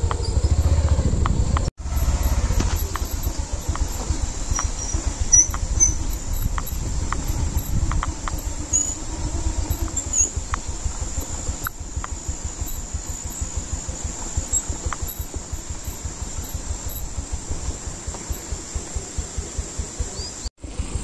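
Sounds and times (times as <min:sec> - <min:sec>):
high whine of insects: 0:00.0 - 0:21.0
motorcycle engine rumbling: 0:00.0 - 0:21.0.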